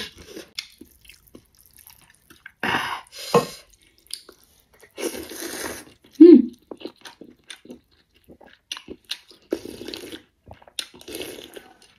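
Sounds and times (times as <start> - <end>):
person slurping noodles: 5.0 - 6.0, 9.5 - 10.2, 11.0 - 11.8.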